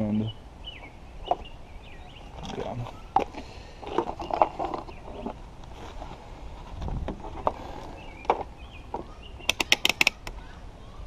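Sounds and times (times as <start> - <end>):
sharp clicks: 9.5 - 10.4.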